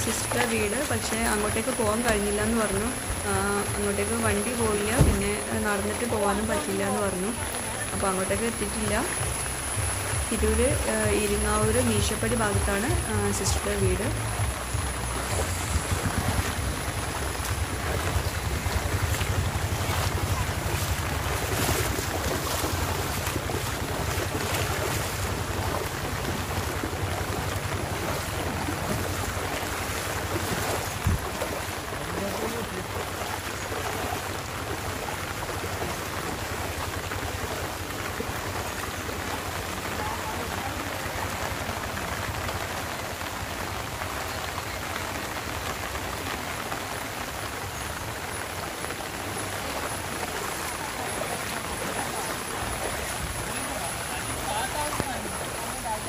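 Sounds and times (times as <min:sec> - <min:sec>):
wind rumble on microphone: 0:00.0 - 0:39.8
heavy rain on road: 0:00.0 - 0:56.0.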